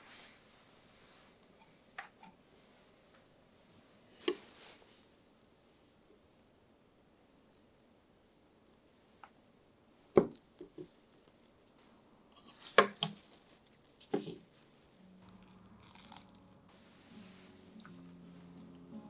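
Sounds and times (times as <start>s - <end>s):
faint music: 10.7s - 19.0s.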